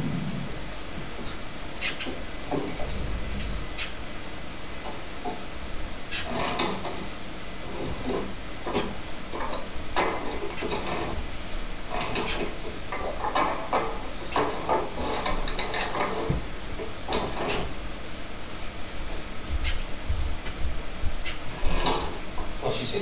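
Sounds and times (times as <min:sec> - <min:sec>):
birdcage rattling and knocking: 0:06.2 - 0:07.1, 0:07.7 - 0:11.3, 0:11.9 - 0:17.8, 0:21.6 - 0:22.2
scraping in cage: 0:21.2 - 0:22.3.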